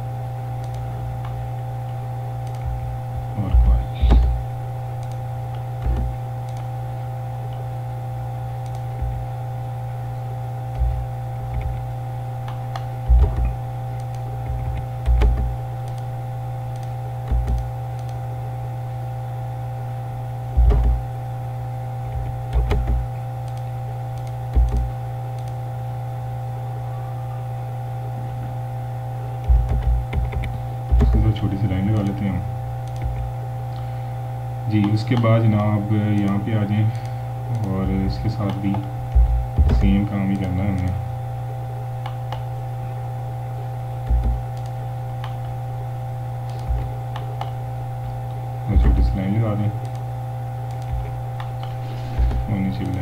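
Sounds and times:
low electrical hum: 0:00.0 - 0:53.0
mouse clicks and keystrokes: 0:00.6 - 0:01.4, 0:02.4 - 0:02.8, 0:05.0 - 0:06.7, 0:08.6 - 0:09.2, 0:12.4 - 0:16.1, 0:16.7 - 0:18.2, 0:22.1 - 0:25.6, 0:29.4 - 0:31.3, 0:32.0 - 0:32.2, 0:32.8 - 0:33.3, 0:44.0 - 0:45.5, 0:46.4 - 0:47.6, 0:50.7 - 0:53.0.

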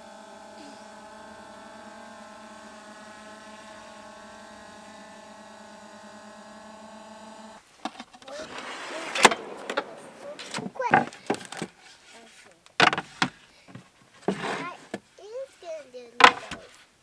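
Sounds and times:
machine hum: 0:00.0 - 0:15.0
clicks and knocks: 0:16.2 - 0:16.7.

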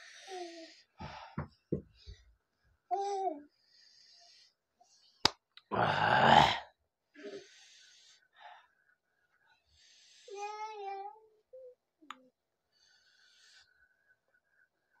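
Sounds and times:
man breathing hard: 0:01.0 - 0:01.6.

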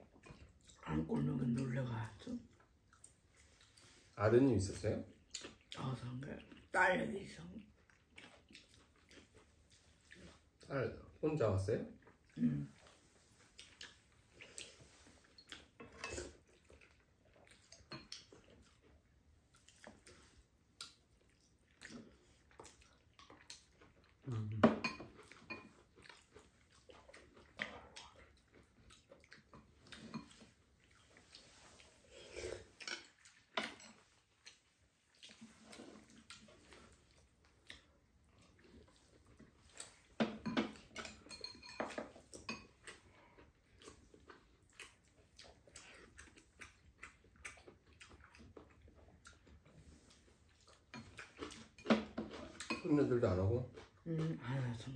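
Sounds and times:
utensils clinking on bowls: 0:40.2 - 0:42.8.

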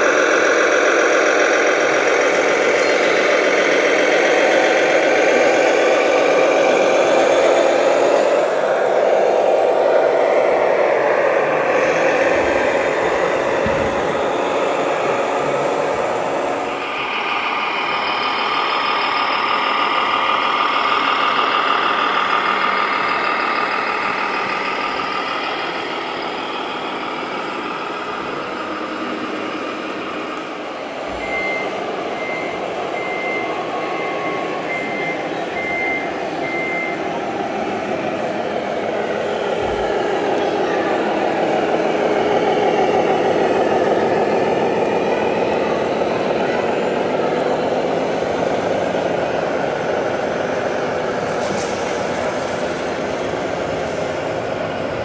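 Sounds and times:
engine-like drone: 0:00.0 - 0:55.0
reversing warning beeps: 0:31.1 - 0:37.1.

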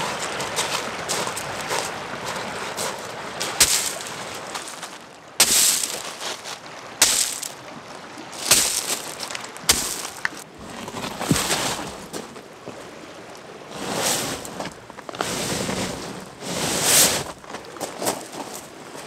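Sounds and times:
footsteps crunching on shingle: 0:00.0 - 0:07.6, 0:08.4 - 0:12.5, 0:17.3 - 0:18.7
gravel rattling: 0:00.0 - 0:07.6, 0:08.4 - 0:12.5, 0:14.3 - 0:19.0
waves lapping: 0:00.0 - 0:19.0
rocks thudding onto pebbles: 0:03.4 - 0:07.6, 0:08.4 - 0:12.4.

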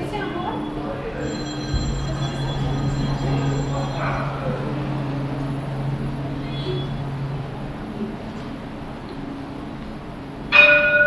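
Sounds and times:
tram electrical hum: 0:00.0 - 0:11.0
thin high whines: 0:00.4 - 0:08.8
dull low thump: 0:01.6 - 0:05.6.

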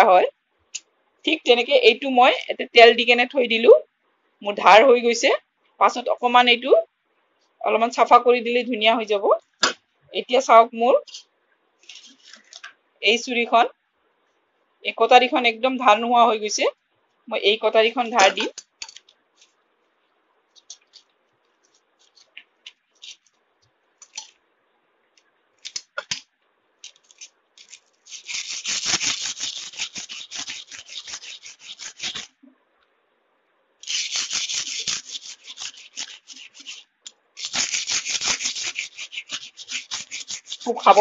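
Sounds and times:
knife scraping on sandpaper: 0:11.8 - 0:12.6, 0:20.5 - 0:23.3, 0:26.9 - 0:32.4, 0:33.8 - 0:41.0.

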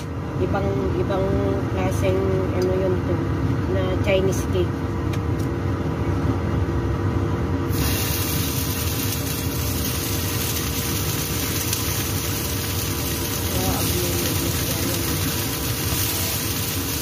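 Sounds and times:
steady low hum: 0:00.0 - 0:17.0
food sizzling in hot oil: 0:07.7 - 0:17.0.

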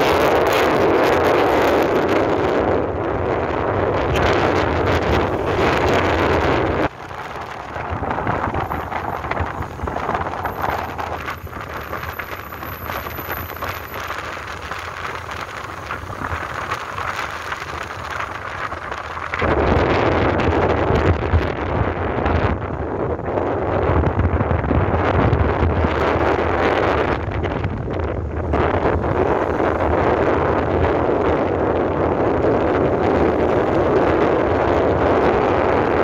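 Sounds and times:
road noise: 0:00.0 - 0:36.0
wind rushing over microphone: 0:00.0 - 0:36.0.

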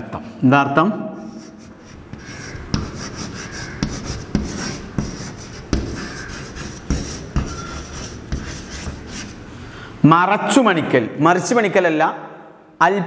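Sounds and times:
chalk scratching on blackboard: 0:01.2 - 0:09.5
chalk tapping on board: 0:01.3 - 0:09.4.

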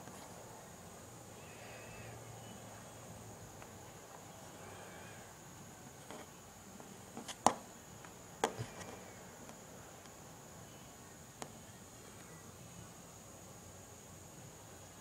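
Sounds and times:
faint steady hiss: 0:00.0 - 0:15.0
taps on a hard desktop: 0:07.4 - 0:07.6, 0:08.4 - 0:09.0.

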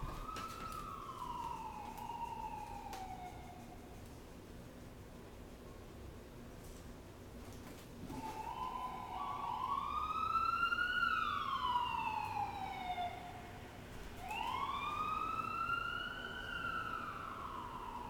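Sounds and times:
emergency siren wailing: 0:00.0 - 0:04.0, 0:08.0 - 0:18.0.

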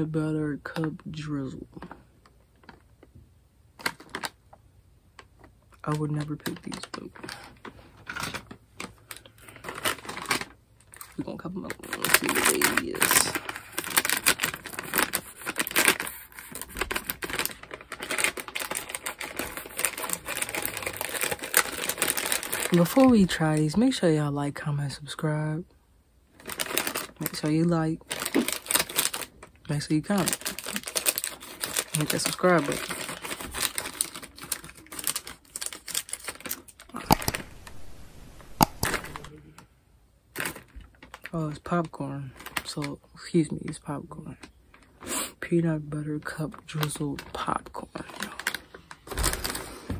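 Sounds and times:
plastic bag crinkling: 0:03.8 - 0:04.4, 0:05.4 - 0:23.4, 0:26.4 - 0:39.3, 0:48.0 - 0:49.8.

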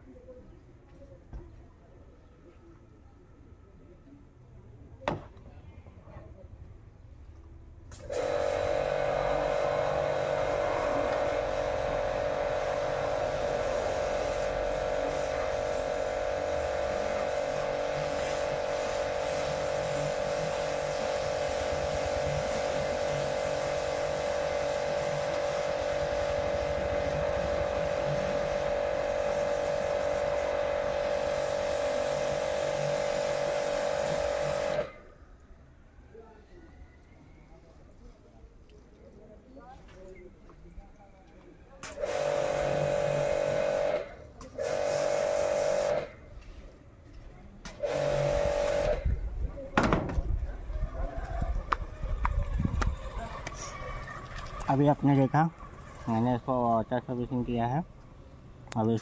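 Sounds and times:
pressure washer pump hum: 0:07.9 - 0:35.1, 0:41.8 - 0:46.8, 0:47.6 - 0:59.0.

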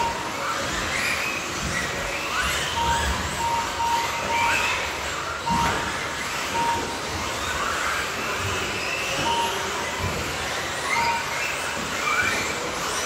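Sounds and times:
short electronic beeps: 0:00.0 - 0:00.3, 0:02.7 - 0:07.6, 0:09.1 - 0:10.1, 0:10.8 - 0:11.8
electric motors whining: 0:00.0 - 0:13.0.

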